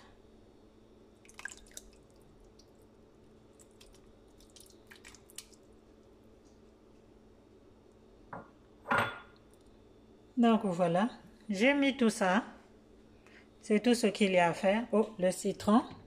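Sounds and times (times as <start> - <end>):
faint steady hum: 0.0 - 16.0
wet plops of tomatoes: 3.6 - 5.7.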